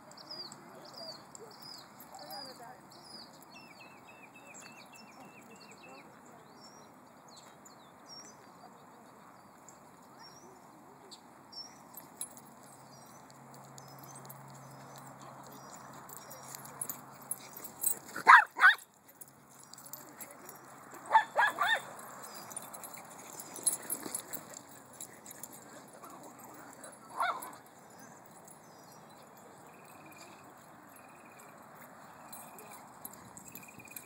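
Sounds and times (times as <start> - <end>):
dog barking: 18.2 - 18.8, 21.1 - 21.9, 27.1 - 27.6.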